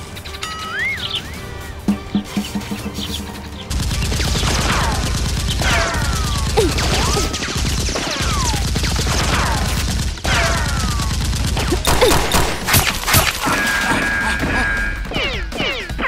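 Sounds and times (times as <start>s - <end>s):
pulsing background music: 0.0s - 16.0s
sharp cracks: 3.7s - 13.8s
gunfire sound effects: 3.7s - 14.2s.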